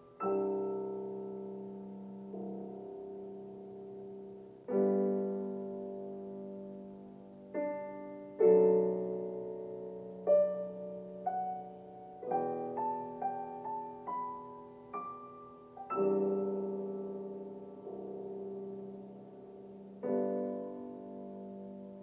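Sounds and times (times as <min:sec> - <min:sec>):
solo piano music: 0:00.0 - 0:22.0.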